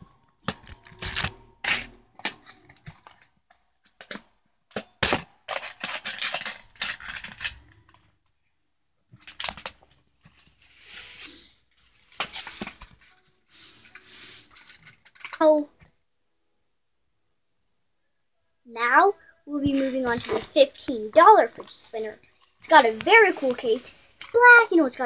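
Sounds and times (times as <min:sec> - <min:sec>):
fidget spinner and packaging clicking: 0:00.0 - 0:08.1, 0:14.5 - 0:15.6, 0:19.5 - 0:25.0
rustling and scraping: 0:09.2 - 0:15.4, 0:19.5 - 0:25.0.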